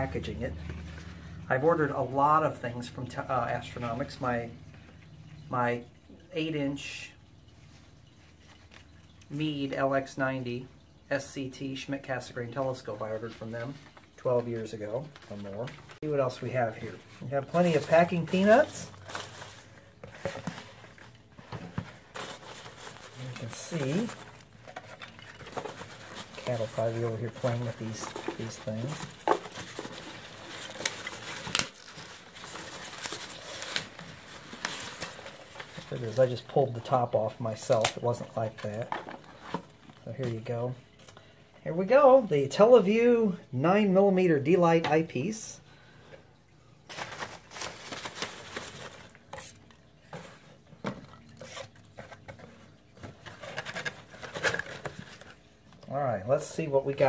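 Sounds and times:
hands rustling packing peanuts: 14.6s - 40.2s, 46.9s - 50.6s.

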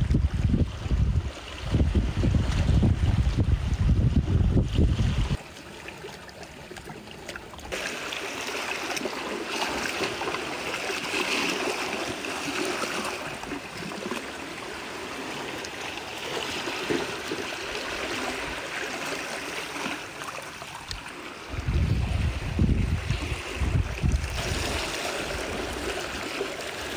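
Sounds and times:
wind rumble on microphone: 0.0s - 5.4s, 20.9s - 26.2s
seawater trickling between rocks: 1.2s - 26.9s.

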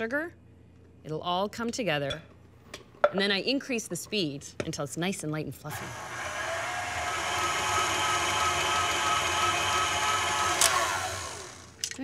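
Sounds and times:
stand mixer motor whine: 5.8s - 11.8s.

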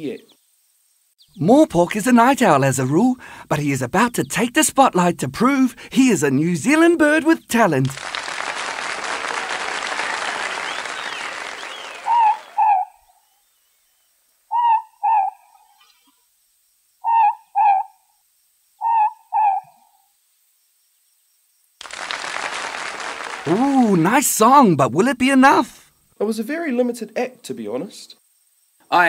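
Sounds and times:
owl two-note hoot: 14.5s - 15.4s, 18.8s - 19.8s
steady hiss: 21.8s - 29.0s.

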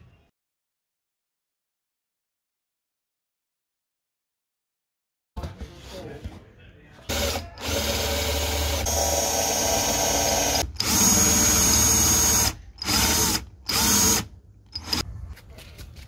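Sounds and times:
cordless drill boring into wood: 7.1s - 15.0s.

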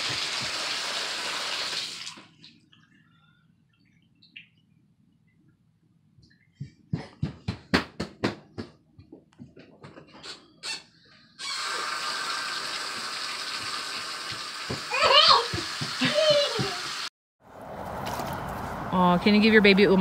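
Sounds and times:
water running into bathtub: 0.0s - 2.3s, 11.4s - 17.1s
footsteps on tile floor: 13.6s - 17.0s.

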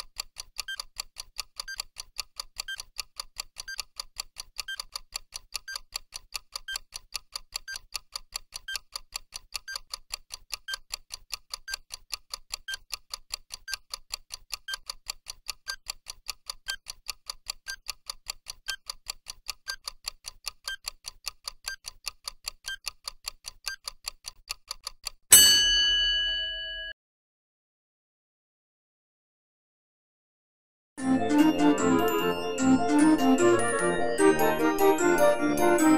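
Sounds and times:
clock ticking rapidly: 0.0s - 25.4s.

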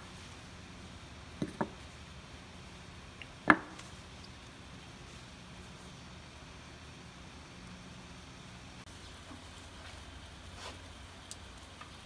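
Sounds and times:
wooden block knocking on board: 3.4s - 3.8s.

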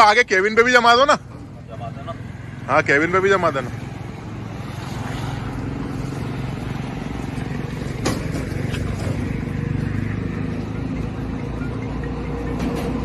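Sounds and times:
engine idling: 6.4s - 13.0s.

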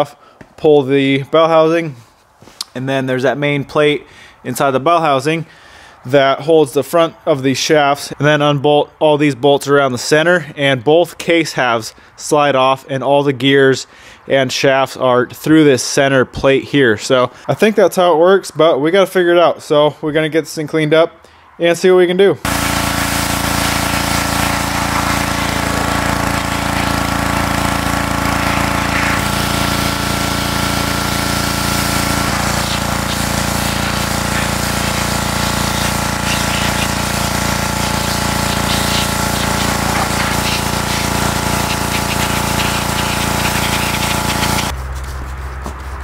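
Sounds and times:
pressure washer motor and pump drone: 22.4s - 44.8s
hissing water spray: 22.5s - 44.8s.

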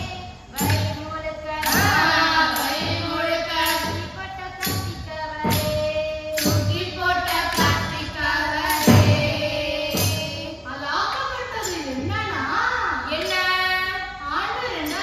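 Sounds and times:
tambourine jingles: 0.0s - 10.7s
girls singing: 0.0s - 15.0s
percussion beat: 0.0s - 15.0s.

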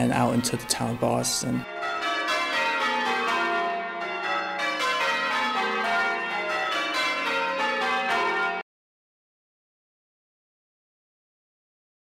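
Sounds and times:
church bells ringing: 0.0s - 8.6s.

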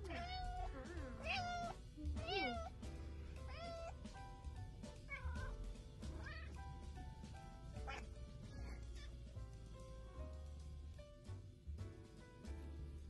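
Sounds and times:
cat meowing: 0.0s - 2.8s, 3.4s - 4.0s, 5.1s - 6.6s, 7.8s - 9.2s
background music: 0.0s - 13.0s.

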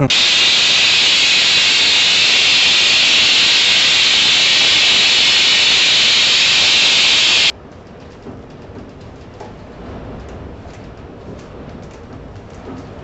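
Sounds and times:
compressed gas hissing: 0.0s - 7.5s.

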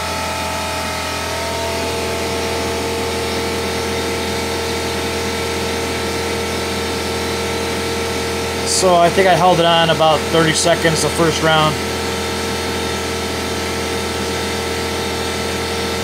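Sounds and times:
air compressor running: 0.0s - 16.0s.

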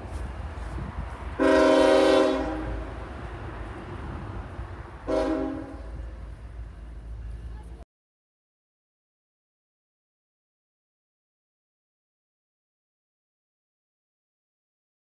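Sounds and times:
locomotive air horn blasts: 1.4s - 2.9s, 5.0s - 6.1s.

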